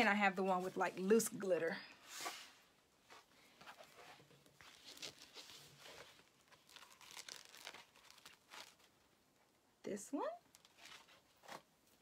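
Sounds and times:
plastic sheets crinkling: 3.1s - 9.2s, 10.4s - 12.0s.

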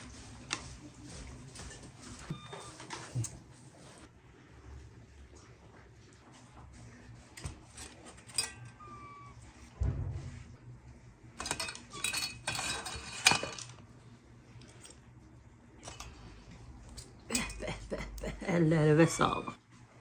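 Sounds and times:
cutlery and dishes clinking: 7.4s - 9.2s, 11.4s - 13.8s.

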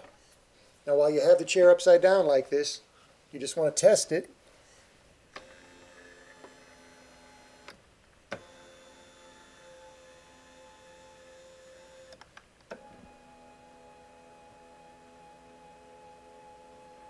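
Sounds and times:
motor sharp clicks: 5.3s - 12.9s
electric motor hum: 5.4s - 17.0s.

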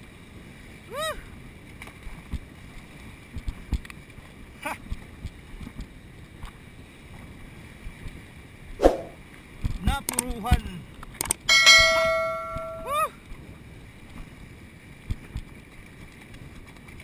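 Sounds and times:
low knocks: 11.5s - 12.9s.

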